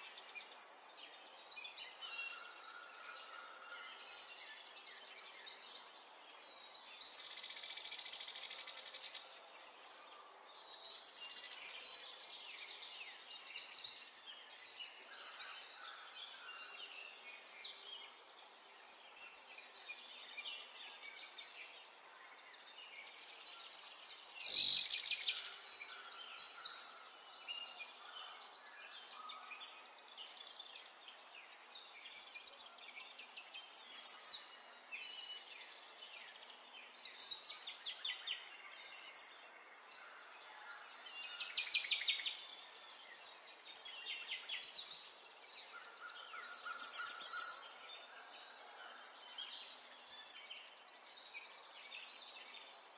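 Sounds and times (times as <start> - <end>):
songbird trilling and chirping: 22.8 - 36.2, 36.9 - 48.6.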